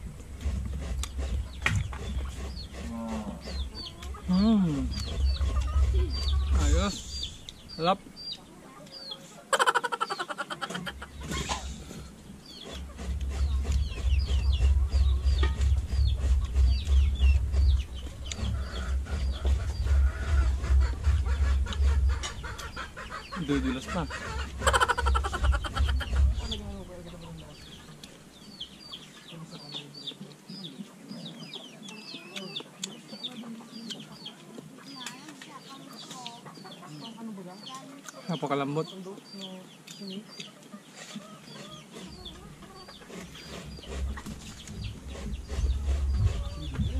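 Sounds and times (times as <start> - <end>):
low rumble: 0.0 - 7.8, 13.1 - 23.3, 24.0 - 28.6, 43.8 - 46.9
chickens clucking: 0.0 - 46.9
small birds chirping: 0.0 - 46.9
high falling peeps: 9.5 - 11.3, 23.4 - 26.7.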